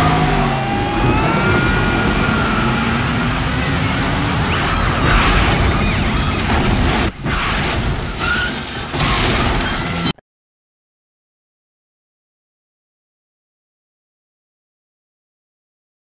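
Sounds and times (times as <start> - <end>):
car crashing through wall: 4.7 - 10.1
debris falling: 5.0 - 10.0
glass breaking: 5.0 - 10.1.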